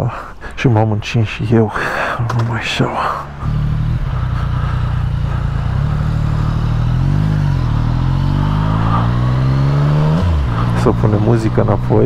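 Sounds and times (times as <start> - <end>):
motorcycle engine revving: 3.1 - 12.0.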